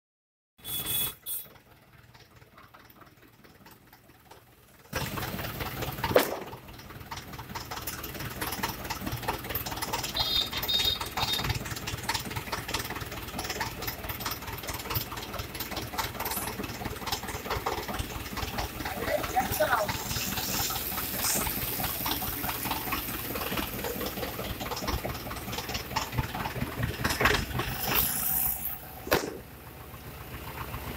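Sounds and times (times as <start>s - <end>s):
diesel tractor engine idling: 0.6s - 30.9s
sharp knock: 6.1s - 6.6s, 29.1s - 29.5s
low hum: 10.9s - 30.9s.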